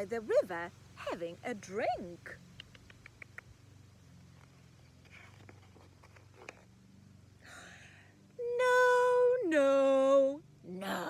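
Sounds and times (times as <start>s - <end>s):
faint paper rustling: 4.3s - 6.7s
breath: 7.4s - 8.2s.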